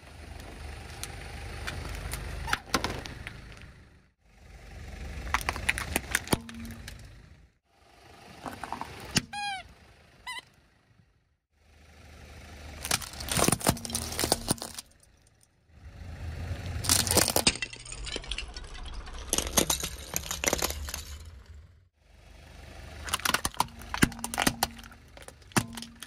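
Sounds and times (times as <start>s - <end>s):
tyre and engine rumble: 0.0s - 26.0s
plastic toys cracking under tyre: 5.2s - 7.0s, 12.8s - 15.0s, 16.8s - 21.5s, 23.0s - 26.0s.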